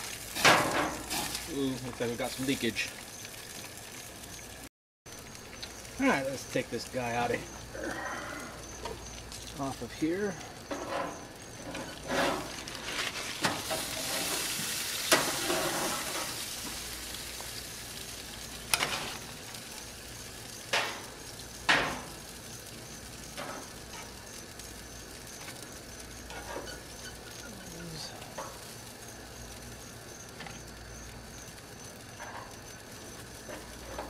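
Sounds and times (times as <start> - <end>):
food sizzling on grill: 0.0 - 34.0
sharp clacks on metal grate: 20.7 - 22.2.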